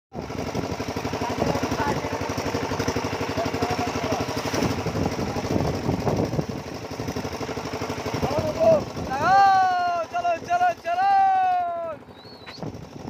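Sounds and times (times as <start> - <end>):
small vehicle engine running: 0.2 - 13.0.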